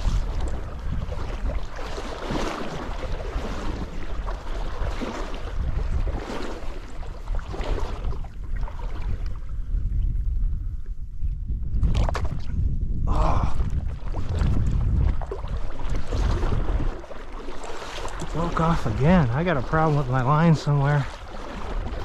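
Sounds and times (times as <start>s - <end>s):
stream water running: 0.0s - 9.3s, 13.5s - 22.0s
wind buffeting microphone: 0.0s - 22.0s.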